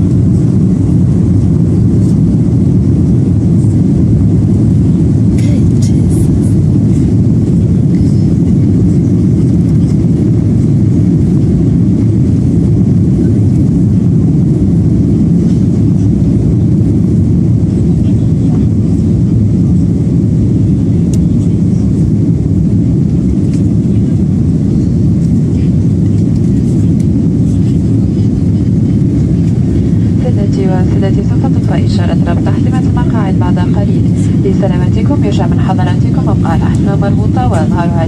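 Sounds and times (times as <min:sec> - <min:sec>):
jet engine rumble in cabin: 0:00.0 - 0:38.0
rushing air: 0:22.0 - 0:38.0.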